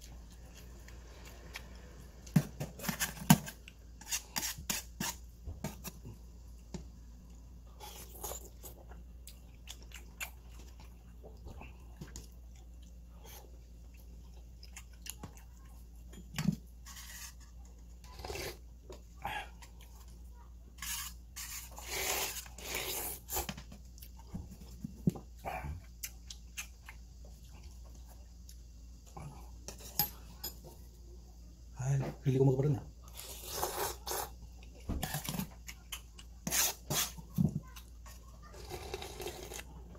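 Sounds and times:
chewing noodles: 7.8 - 16.1, 37.7 - 39.8
slurping noodles: 33.2 - 34.4, 38.6 - 39.6.

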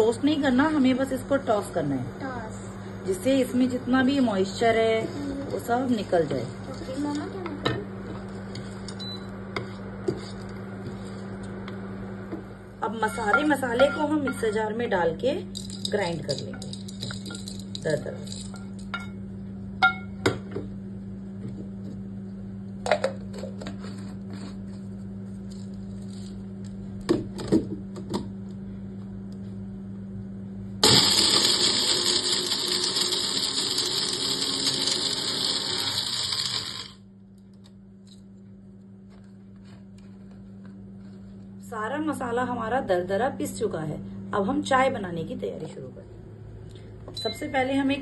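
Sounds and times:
mixer grinder motor grinding: 30.8 - 37.0.

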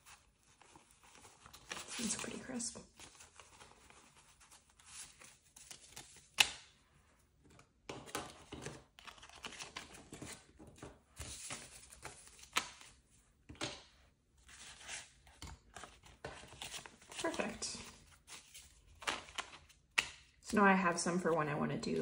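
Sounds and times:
paper banknotes rustling: 0.0 - 6.5, 8.4 - 13.0, 14.4 - 20.4.

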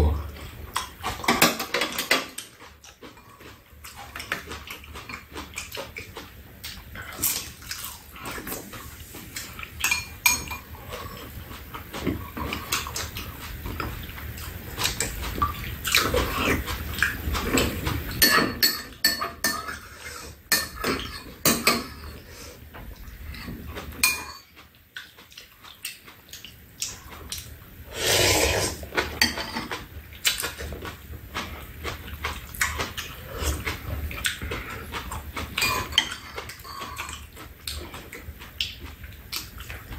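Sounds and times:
chewing and slurping: 2.0 - 18.2, 22.0 - 39.9
utensils clinking on ceramic bowls: 9.8 - 10.7, 18.2 - 19.8, 24.0 - 24.5, 35.6 - 37.2.

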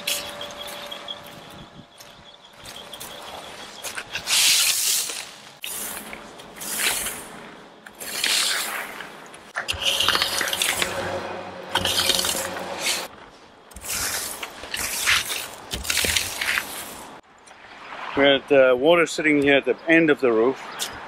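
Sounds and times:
metal rake scraping gravel: 0.0 - 1.1, 2.6 - 17.2.

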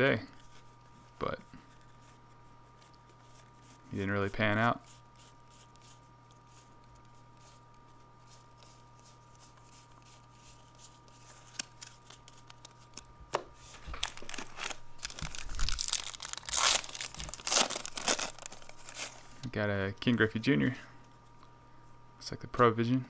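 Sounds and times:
trading cards handled: 5.8 - 19.3
foil wrapper tearing: 13.9 - 19.2.

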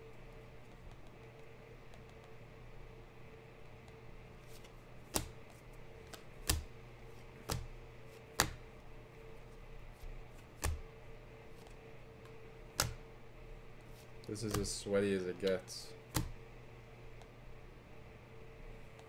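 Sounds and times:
faint steady hum: 0.0 - 19.0
trading cards snapping: 4.5 - 6.7, 7.4 - 8.6, 10.0 - 10.9, 11.6 - 13.1, 14.2 - 14.8, 15.4 - 16.4.

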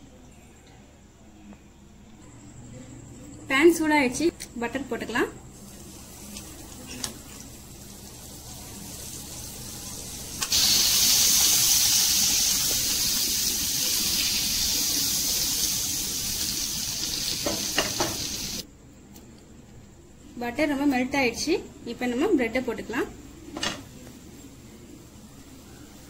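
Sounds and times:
butter sizzling in frying pan: 5.6 - 18.6.

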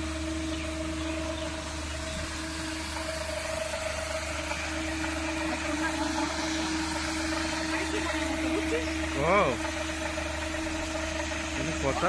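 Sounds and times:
aerator motor hum: 0.0 - 12.0.

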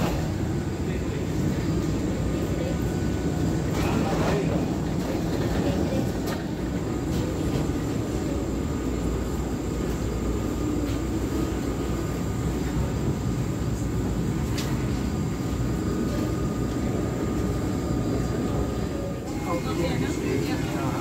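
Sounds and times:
low rumble of aircraft: 0.0 - 21.0
faint high whine: 6.6 - 21.0.

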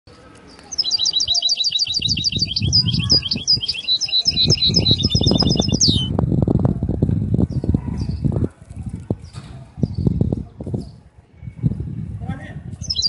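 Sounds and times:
canary singing: 0.5 - 6.1.

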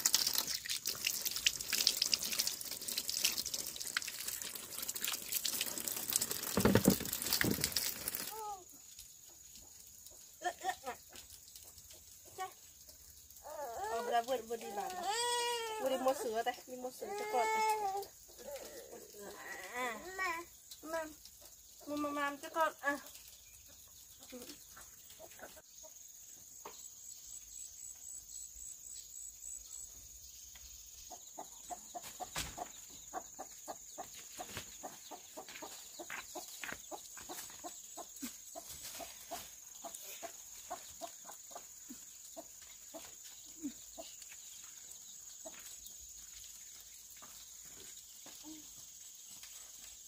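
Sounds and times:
chickens clucking: 23.7 - 26.0, 31.1 - 44.2.

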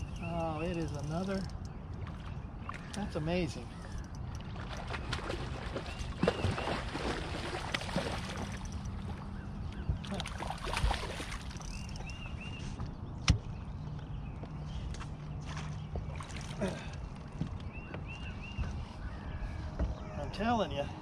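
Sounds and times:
fish thrashing and splashing: 4.4 - 9.3, 10.0 - 12.1.

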